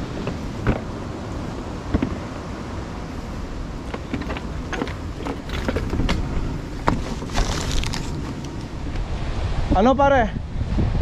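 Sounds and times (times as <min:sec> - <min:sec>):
wind rumbling on microphone: 0:00.0 - 0:11.0
plastic bag crinkling: 0:07.2 - 0:08.2.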